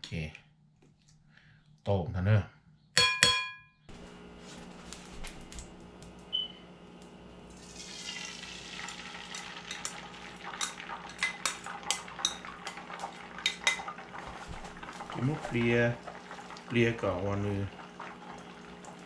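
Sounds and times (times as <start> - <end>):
eggs sizzling in frying pan: 7.4 - 19.0
metal spoon scraping bowl and pan: 10.5 - 12.8.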